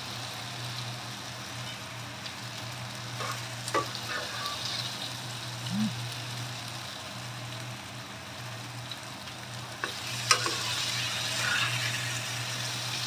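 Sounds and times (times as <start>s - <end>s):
peppers sizzling in a frying pan: 0.0s - 13.0s
steady low hum: 0.3s - 6.7s.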